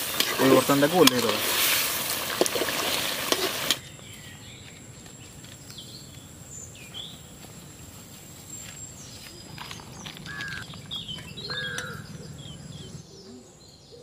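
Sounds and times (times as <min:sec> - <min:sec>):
curry bubbling and sizzling: 0:00.0 - 0:03.8
bird chirps: 0:08.5 - 0:14.0.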